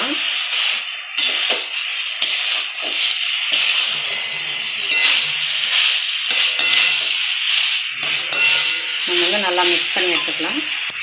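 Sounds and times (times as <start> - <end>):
food sizzling in pan: 0.0 - 11.0
spatula scraping pan: 1.2 - 11.0
metal clinks: 3.9 - 7.1, 8.0 - 9.2.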